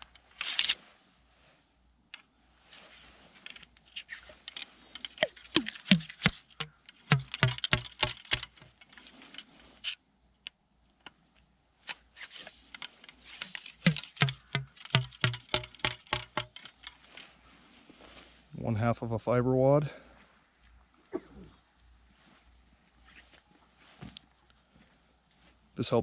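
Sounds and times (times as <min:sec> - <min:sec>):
ramrod knocking in gun barrel: 0:04.5 - 0:08.7, 0:12.8 - 0:16.9.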